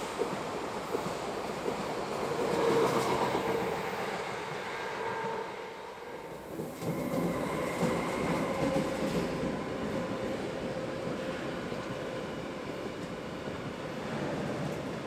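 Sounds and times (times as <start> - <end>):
approaching train rumble: 0.0 - 15.0
faint train whine: 0.0 - 15.0
passing train rumble: 0.0 - 15.0.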